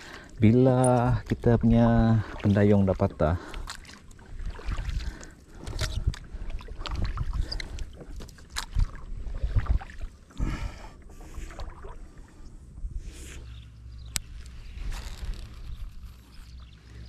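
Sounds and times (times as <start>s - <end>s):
paddle splashes: 0.0s - 12.5s.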